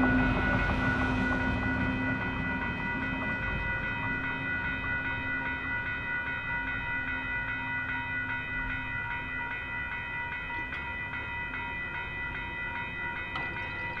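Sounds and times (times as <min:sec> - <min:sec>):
crossing warning bell ringing: 0:00.0 - 0:14.0.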